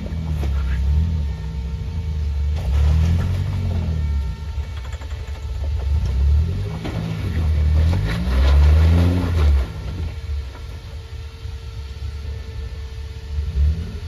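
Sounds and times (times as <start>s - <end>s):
suv engine revving in bursts: 5.8s - 10.4s, 13.2s - 14.0s.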